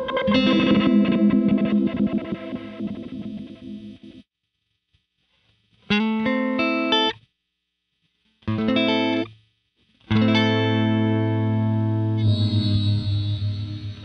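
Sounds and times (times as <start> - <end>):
electric guitar chords with reverb: 0.0 - 4.2.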